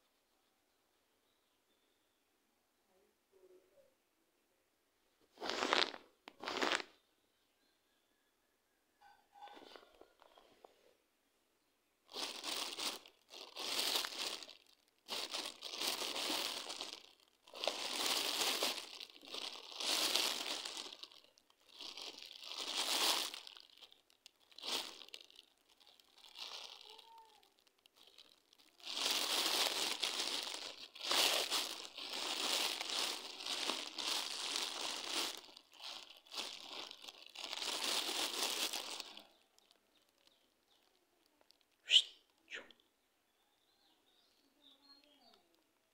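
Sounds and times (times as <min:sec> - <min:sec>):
plastic wrappers crinkling: 0:05.3 - 0:06.9, 0:12.1 - 0:42.4.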